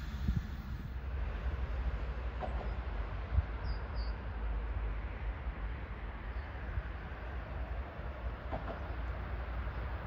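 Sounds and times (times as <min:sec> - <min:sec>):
faint high bird chirps: 0:03.6 - 0:04.2.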